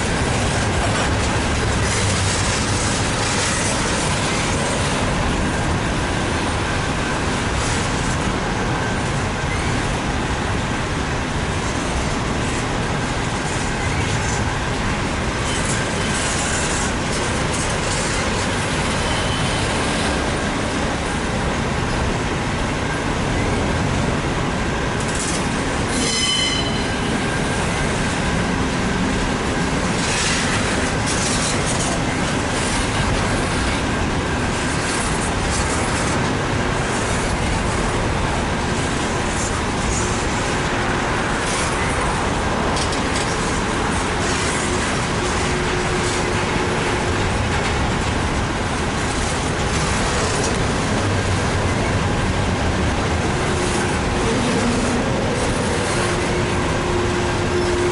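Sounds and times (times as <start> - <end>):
train wheels rumbling on rail: 0.0 - 57.9
shrill wheel squeal: 19.0 - 19.6, 25.9 - 27.2.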